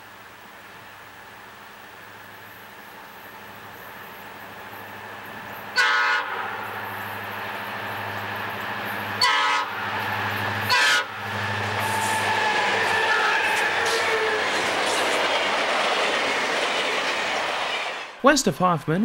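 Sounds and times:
diesel locomotive engine drone: 0:00.0 - 0:18.3
locomotive air horn blasts: 0:05.8 - 0:06.6, 0:09.2 - 0:09.8, 0:10.6 - 0:14.0.

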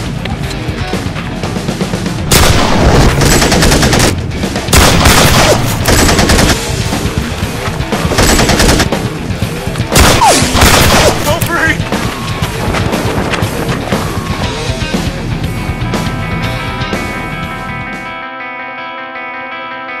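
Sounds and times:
background music: 0:00.0 - 0:20.0
automatic gunfire bursts: 0:02.3 - 0:06.6, 0:08.1 - 0:09.0, 0:10.0 - 0:11.4.

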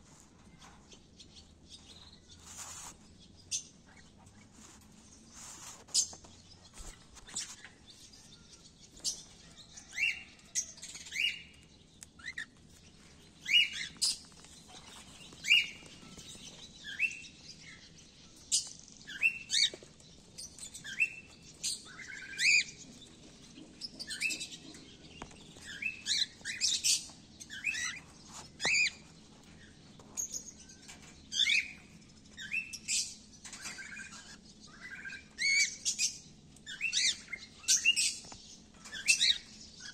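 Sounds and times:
cockatiels chirping: 0:09.0 - 0:12.6, 0:13.4 - 0:17.9, 0:20.4 - 0:30.5, 0:32.4 - 0:39.9.

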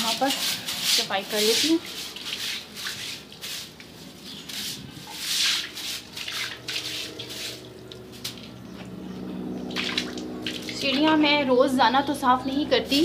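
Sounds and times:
water swishing over steps: 0:00.0 - 0:07.7, 0:09.7 - 0:11.2.

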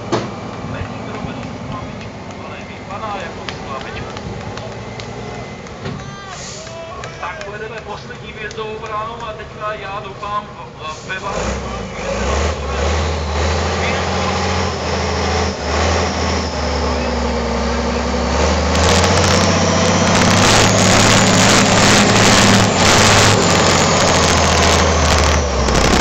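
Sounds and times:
truck diesel engine working hard: 0:00.0 - 0:08.1, 0:08.8 - 0:26.0
crackling noise: 0:18.6 - 0:26.0.

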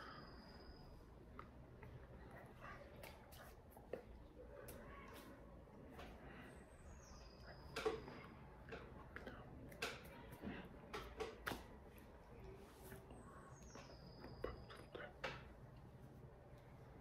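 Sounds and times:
breaths: 0:00.0 - 0:00.7, 0:06.0 - 0:07.4
low room hum: 0:00.0 - 0:17.0
lip smacks: 0:01.3 - 0:05.3, 0:08.6 - 0:11.8.

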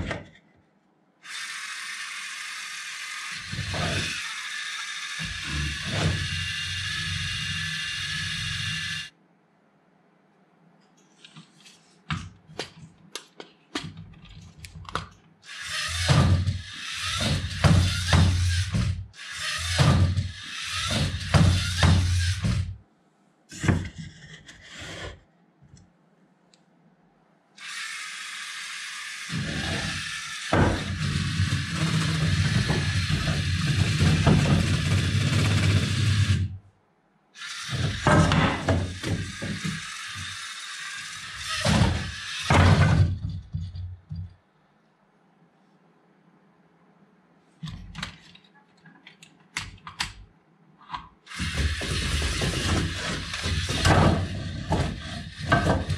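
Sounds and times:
electric motors and gears whirring: 0:01.2 - 0:09.1, 0:15.4 - 0:22.8, 0:27.6 - 0:36.6, 0:37.4 - 0:44.2, 0:51.3 - 0:55.9.

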